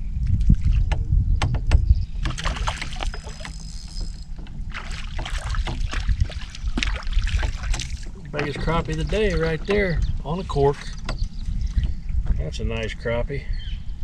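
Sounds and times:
wind rumbling on microphone: 0.0s - 14.0s
water slapping against boat hull: 0.2s - 12.4s.

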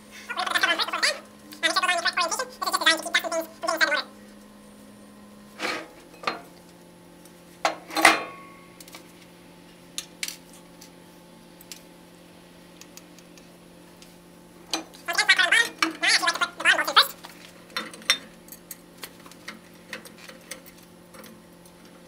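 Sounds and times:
ringing metallic clank: 7.9s - 8.6s.

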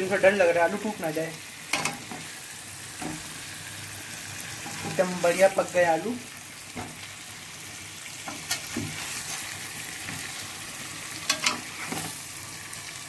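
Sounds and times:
oil sizzling in a pan: 0.0s - 13.0s
spoon scraping a pan: 4.6s - 5.3s, 8.2s - 12.3s.

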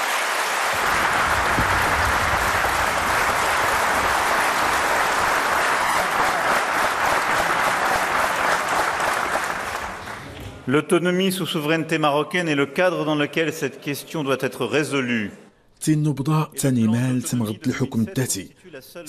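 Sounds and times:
audience applause: 0.0s - 10.4s.

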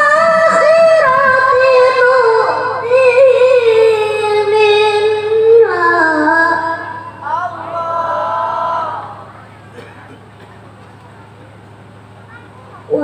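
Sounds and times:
boy reciting melodically: 0.0s - 9.4s, 12.3s - 13.0s.

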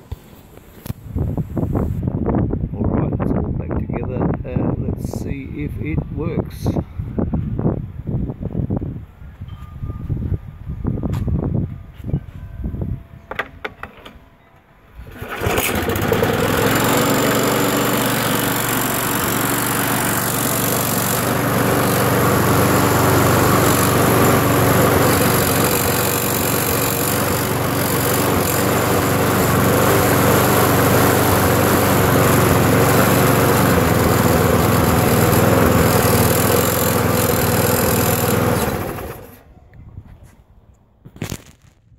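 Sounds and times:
lawnmower engine running: 14.9s - 39.5s.

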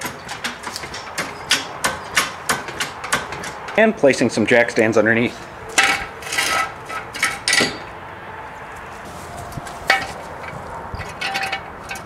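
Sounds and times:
metal clanks and clicks of jack stand: 0.0s - 3.9s, 4.7s - 7.9s, 9.8s - 12.0s.

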